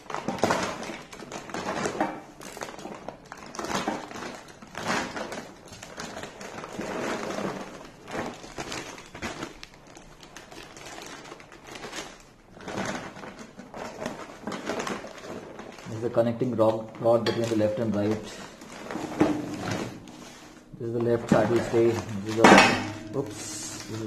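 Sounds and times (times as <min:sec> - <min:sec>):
plastic bag rustling: 0:00.0 - 0:24.0
metal tubes shifting: 0:17.0 - 0:24.0.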